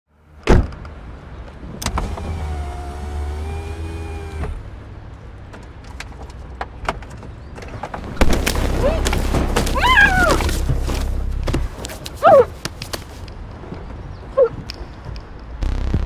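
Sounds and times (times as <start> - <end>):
thump: 0.5 - 0.8
power window motor whirring: 1.9 - 4.6.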